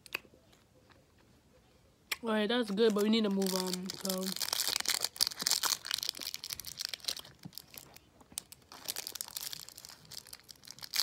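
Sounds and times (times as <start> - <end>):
candy wrapper crinkling: 2.6 - 11.0.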